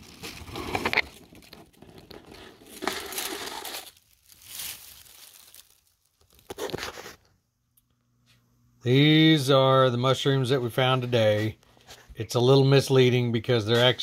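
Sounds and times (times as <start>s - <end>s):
dry leaves crunching and rustling: 0.0s - 6.5s.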